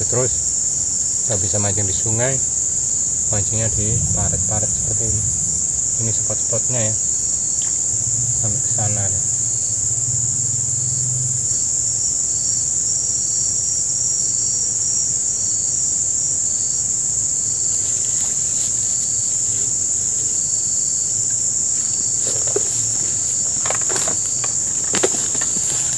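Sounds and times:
insect chirping in pulses: 0.0 - 25.9
insect chorus drone: 0.0 - 25.9
rustles and knocks: 21.7 - 25.9.

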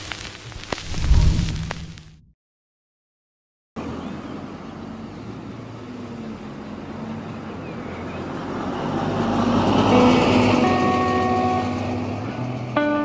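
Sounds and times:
street traffic rumble: 3.8 - 13.0
vehicle passing close: 5.7 - 13.0.

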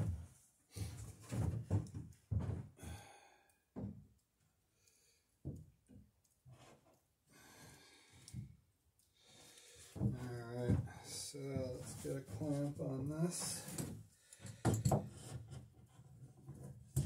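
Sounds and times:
breathy sigh: 2.8 - 3.5.

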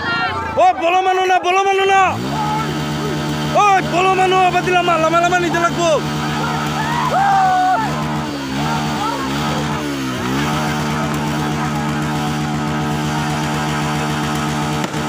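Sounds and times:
small engine running steadily: 0.6 - 15.0.

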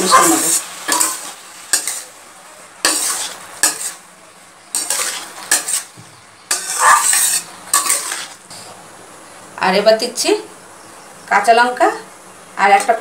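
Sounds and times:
vegetables sizzling: 0.0 - 13.0
metal spatula scraping pan: 0.4 - 2.1, 2.8 - 4.0, 4.7 - 5.9, 6.5 - 8.6.

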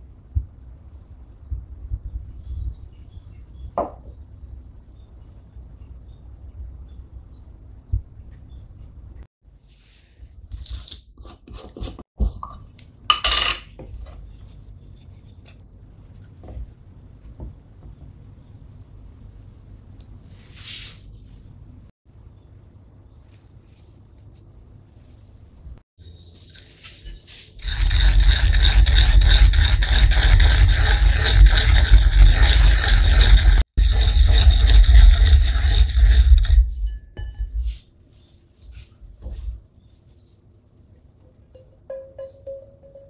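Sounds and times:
pestle grinding in mortar: 27.6 - 37.0.

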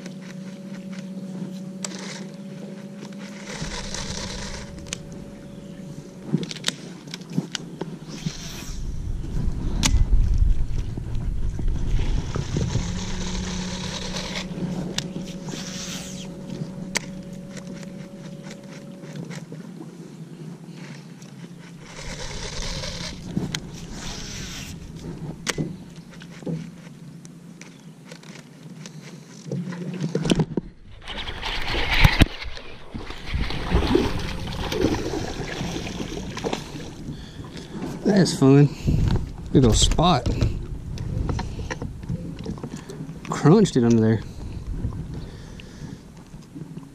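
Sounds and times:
fishing reel clicking: 3.0 - 5.2, 12.3 - 19.4, 21.7 - 24.8.

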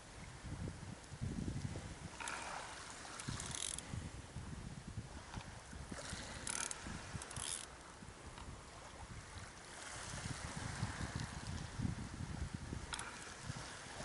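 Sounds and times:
wind buffeting microphone: 0.0 - 14.0
fishing reel rasps: 2.2 - 3.8, 6.0 - 7.8, 12.9 - 13.4.

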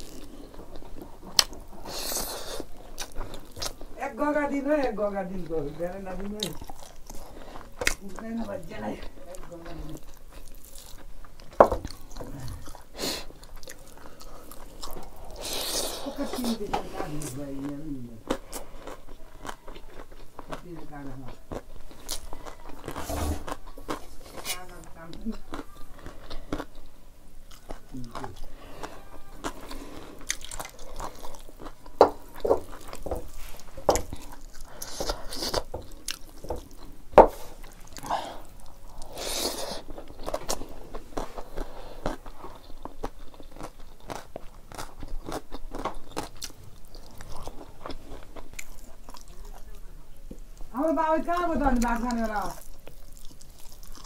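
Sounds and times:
chewing food: 0.0 - 54.0
hissy breath noises: 12.9 - 13.4.

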